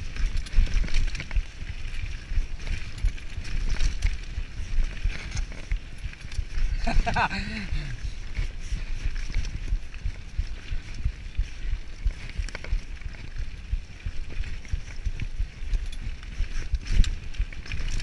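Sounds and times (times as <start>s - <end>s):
tyres rolling over gravel: 0.0s - 9.4s
bike rattling over bumps: 0.0s - 18.0s.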